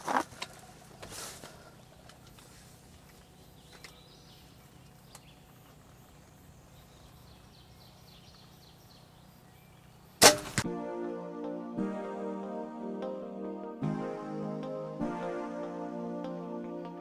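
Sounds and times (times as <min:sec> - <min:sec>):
faint woodland background: 0:00.0 - 0:17.0
loud shotgun blast: 0:10.2 - 0:10.6
piano and synthesizer music: 0:10.6 - 0:17.0.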